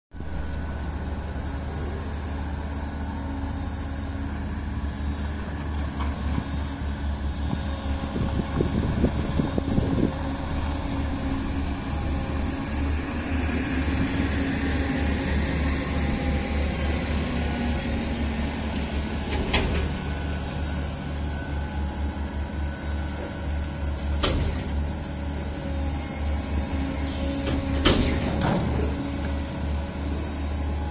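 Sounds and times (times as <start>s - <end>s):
diesel engine running: 0.2s - 30.9s.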